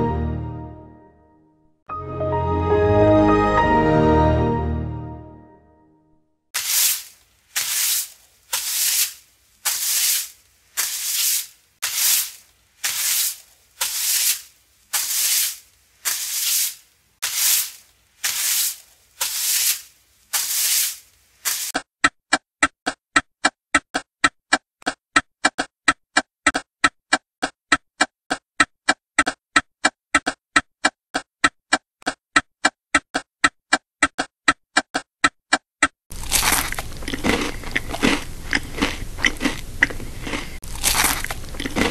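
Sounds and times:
hissing bursts: 6.6s - 21.7s
crunching: 6.6s - 21.8s, 36.1s - 41.9s.

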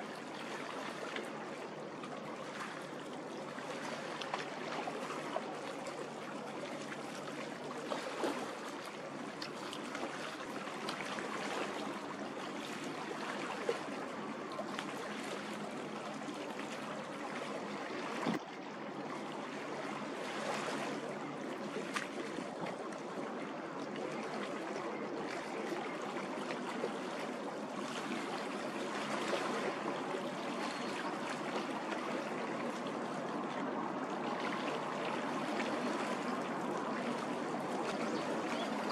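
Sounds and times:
rushing water of ship wake: 0.0s - 38.9s.

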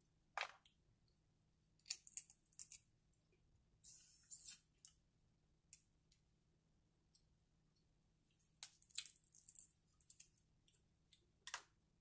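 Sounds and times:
crab shells clicking and crackling: 1.8s - 2.9s.

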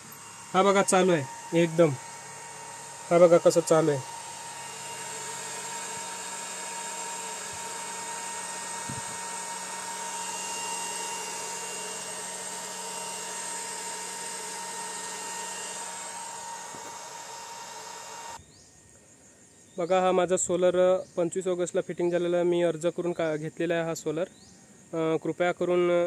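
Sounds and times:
electrical whine and hum: 0.0s - 18.6s.

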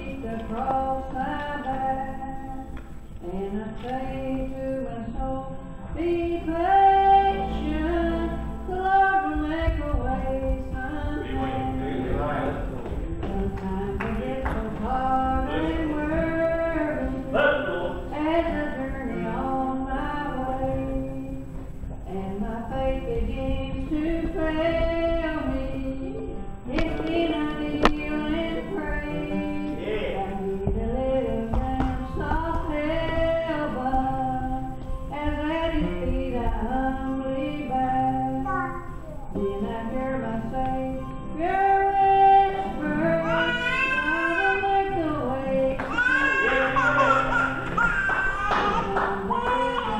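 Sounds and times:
woman singing: 0.0s - 17.4s, 18.0s - 49.9s.

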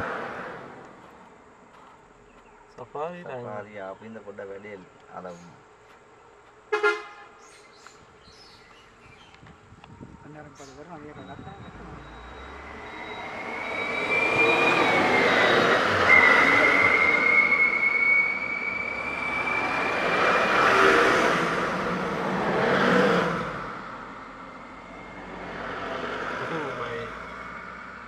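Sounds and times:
thin high whine: 11.2s - 22.3s.

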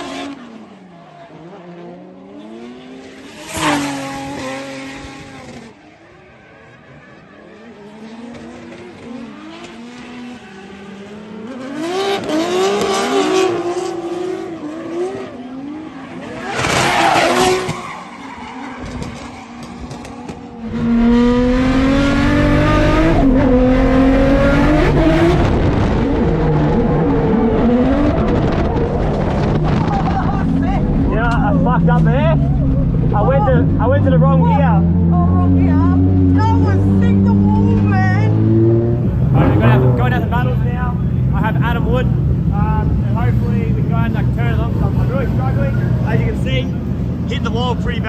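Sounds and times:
car engine revving: 0.0s - 5.8s, 7.1s - 48.0s
tyre squeal: 15.9s - 20.4s.

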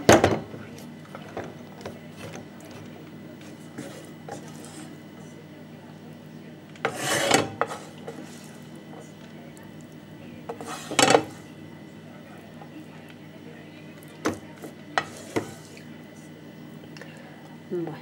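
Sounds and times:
spoon scraping frying pan: 3.7s - 5.0s, 6.8s - 8.6s, 10.5s - 11.5s, 15.0s - 15.7s.

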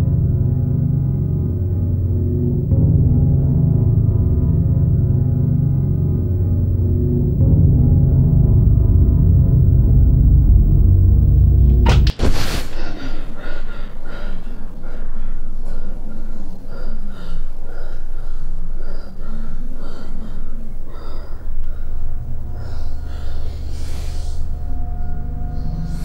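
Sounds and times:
steady low drone: 0.0s - 26.0s
woman breathing quickly with gasps: 12.6s - 26.0s.

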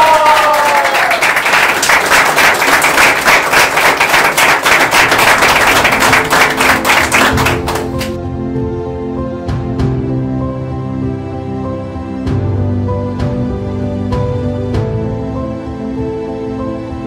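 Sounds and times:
whooping cheer: 0.0s - 1.9s
applause: 0.0s - 8.2s
music: 0.0s - 17.0s.

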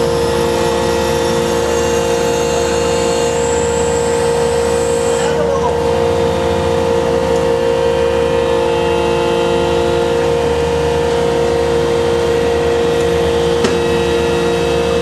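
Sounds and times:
boat engine humming: 0.0s - 15.0s
sharp knock: 13.6s - 13.9s.

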